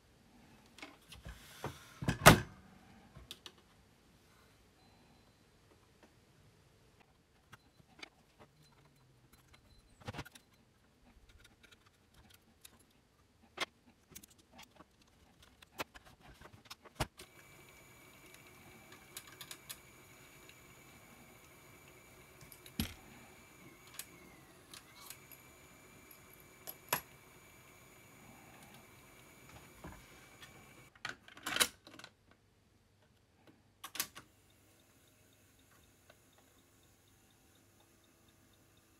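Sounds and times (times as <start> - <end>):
faint steady whine: 4.1 - 13.0, 17.2 - 30.9, 34.2 - 38.9.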